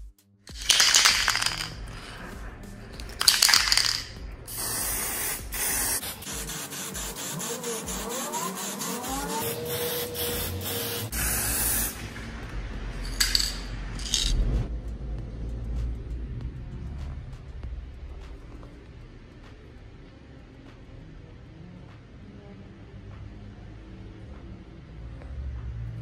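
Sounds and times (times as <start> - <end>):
aerosol spray can hissing: 0.5 - 2.1, 3.0 - 12.1.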